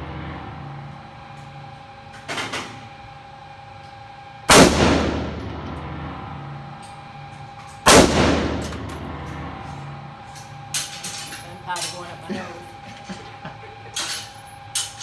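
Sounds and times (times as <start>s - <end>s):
gunshot echo off walls: 4.5s - 5.5s, 7.9s - 8.8s
rifle shots: 4.5s - 5.6s, 7.9s - 8.9s.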